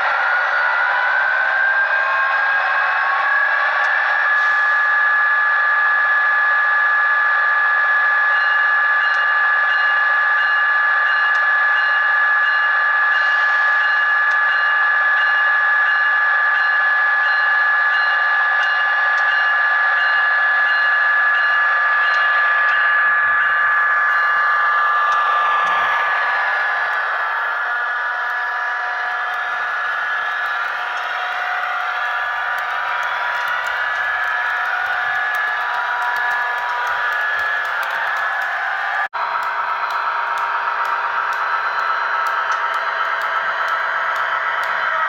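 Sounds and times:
model train motor whining: 0:16.6 - 0:45.0.

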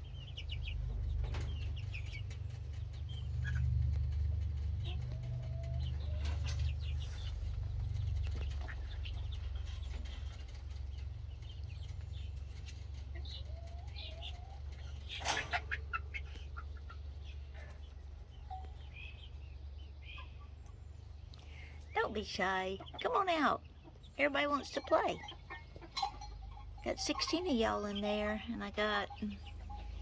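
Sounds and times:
steady low rumble: 0:00.0 - 0:13.2
chicks calling and clucking: 0:00.0 - 0:30.0.

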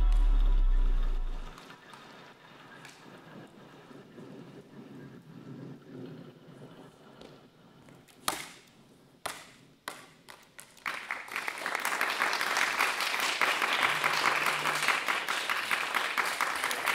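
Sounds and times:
audience applauding: 0:10.8 - 0:16.9.

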